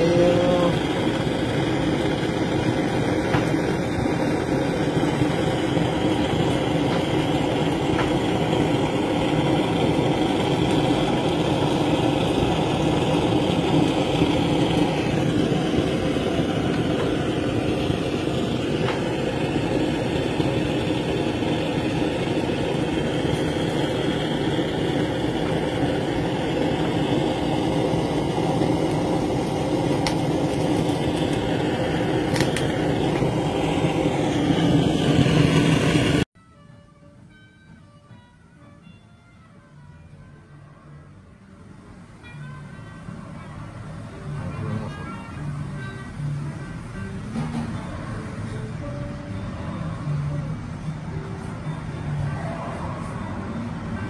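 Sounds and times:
blowtorch flame burning: 0.0s - 36.4s.

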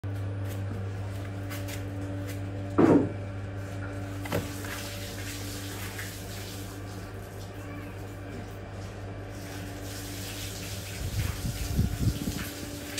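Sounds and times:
plastic stool knocking: 2.8s - 3.1s.

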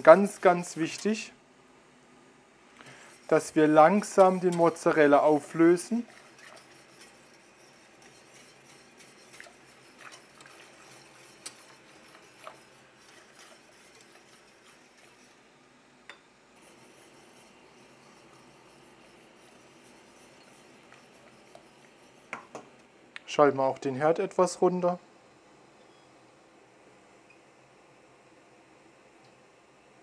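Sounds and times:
wire whisk scraping a pot: 2.9s - 15.5s, 16.6s - 22.5s
whisk wires clinking against pot: 3.9s - 15.2s.

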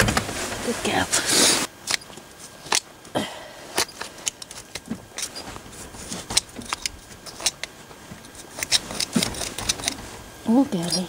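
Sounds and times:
hoof pick scraping dirt: 3.8s - 10.1s
hoof pick clicking on horseshoe: 6.3s - 10.0s.

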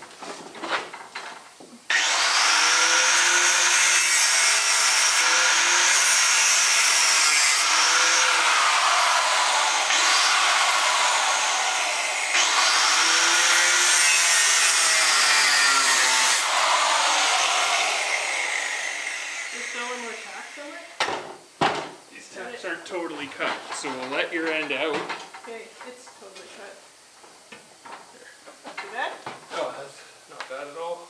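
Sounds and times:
power grinder grinding steel: 1.9s - 20.8s.

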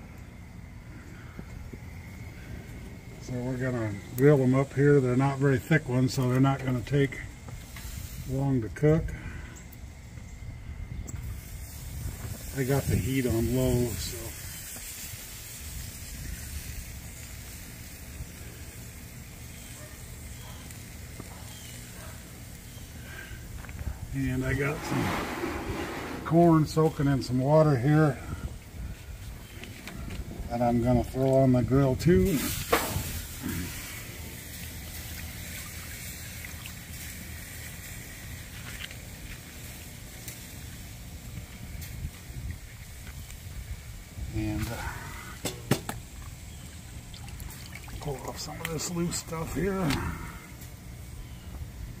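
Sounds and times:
low rumble and hiss: 0.0s - 52.0s
pork chops sizzling on a grill: 3.0s - 29.6s, 30.5s - 47.1s, 48.0s - 52.0s
water sloshing in plastic bowl: 46.2s - 48.4s.

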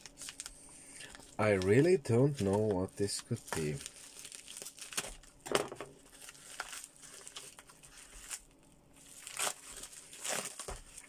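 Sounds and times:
plastic wrapping tearing and crinkling: 0.0s - 11.0s
knife slitting plastic wrapping: 6.1s - 8.4s, 9.0s - 11.0s.

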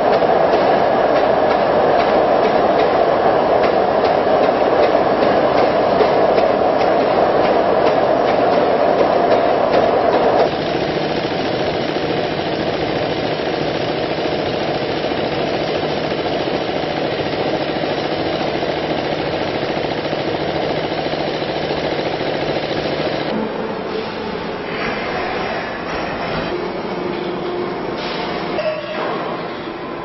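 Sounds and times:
steady machine hum: 0.0s - 23.9s
machinery rattling: 3.6s - 23.4s.

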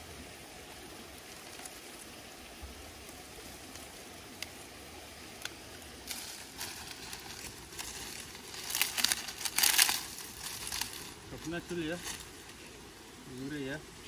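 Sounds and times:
low background hiss: 0.0s - 14.0s
dry rustling and crinkling: 5.2s - 12.8s.

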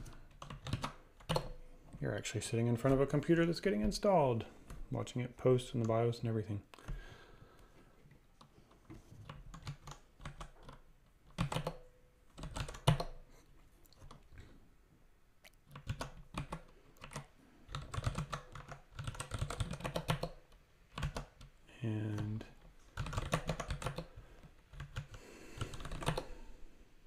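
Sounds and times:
typing on computer keyboard: 0.0s - 1.6s, 9.2s - 13.2s, 15.7s - 26.4s.

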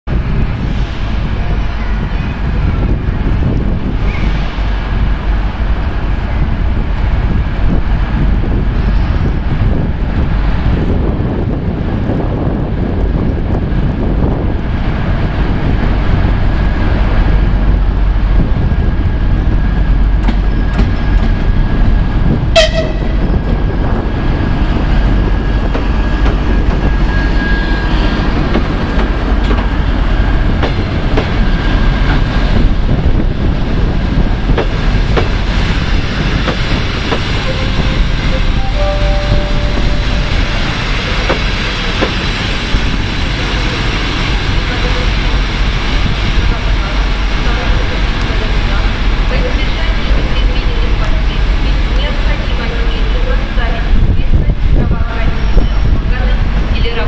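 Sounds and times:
diesel locomotive engine: 0.1s - 57.0s
brief sharp tone: 37.4s - 41.3s.

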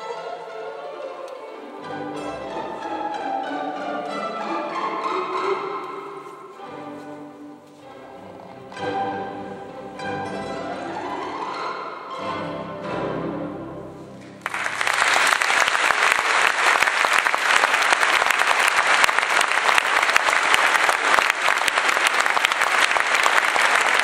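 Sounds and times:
orchestra playing: 0.0s - 24.0s
audience applauding: 14.4s - 24.0s.

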